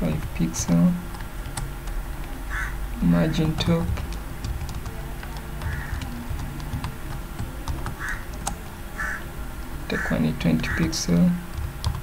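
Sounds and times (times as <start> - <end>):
keyboard typing: 0.0 - 8.7, 11.5 - 12.0.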